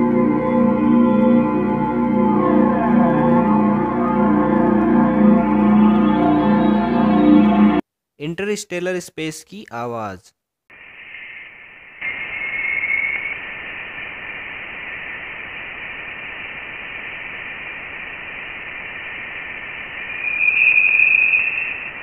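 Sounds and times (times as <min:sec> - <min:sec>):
radio-like static hiss: 0:10.7 - 0:22.0.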